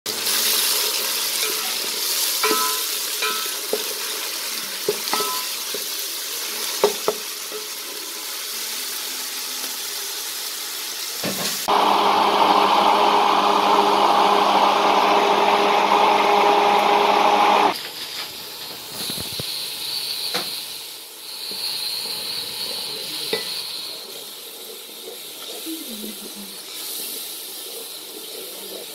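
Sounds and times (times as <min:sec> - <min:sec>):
onions sizzling in hot oil: 0:00.1 - 0:28.9
spice masala sizzling: 0:00.1 - 0:28.9
spatula clinking: 0:02.4 - 0:03.8, 0:05.1 - 0:05.6
immersion blender running: 0:11.7 - 0:17.8.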